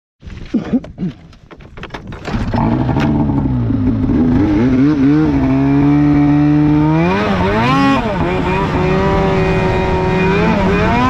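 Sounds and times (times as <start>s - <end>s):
snowmobile engine revving: 2.5s - 11.0s.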